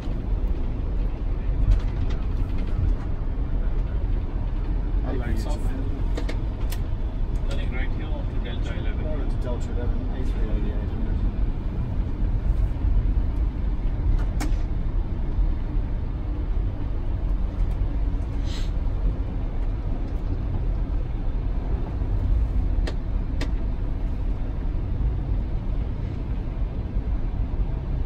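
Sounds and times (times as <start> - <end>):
low cockpit rumble: 0.0 - 28.0
brief hiss: 18.4 - 18.8.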